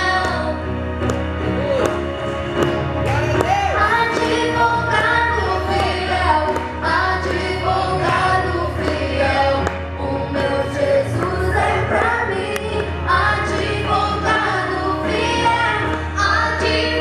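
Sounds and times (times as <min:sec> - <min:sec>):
instrumental accompaniment: 0:00.0 - 0:17.0
women singing gospel: 0:03.7 - 0:17.0.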